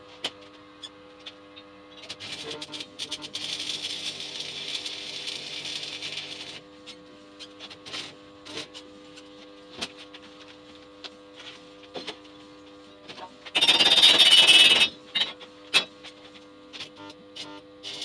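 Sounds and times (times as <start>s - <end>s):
welding transformer humming: 0.0s - 18.0s
welding arc crackling hiss: 2.0s - 9.2s, 16.8s - 18.0s.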